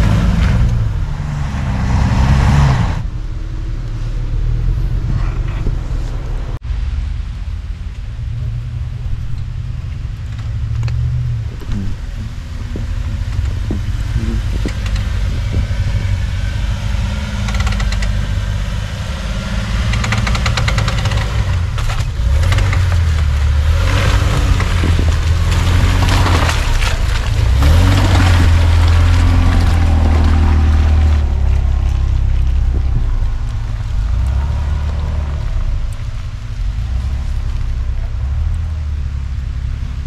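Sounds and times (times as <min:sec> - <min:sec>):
off-road vehicle engines rumbling: 0:00.0 - 0:40.0
tyres crunching through snow: 0:09.0 - 0:40.0.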